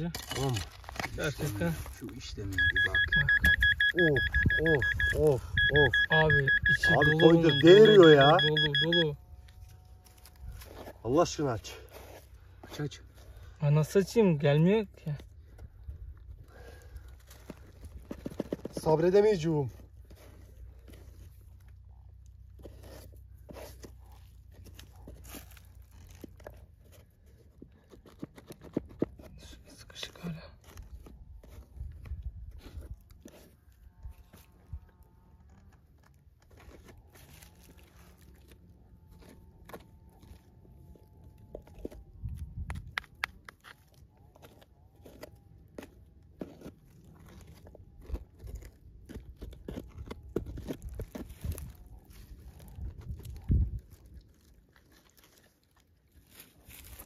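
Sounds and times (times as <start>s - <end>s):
hands scraping crumbly soil: 0.0s - 3.3s, 17.0s - 34.6s, 35.8s - 57.0s.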